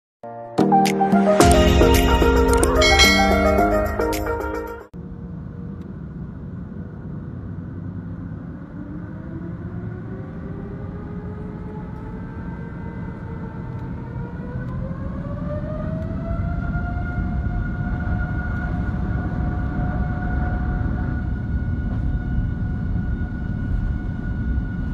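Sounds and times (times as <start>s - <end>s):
jet engines rumbling and whining: 5.1s - 24.9s.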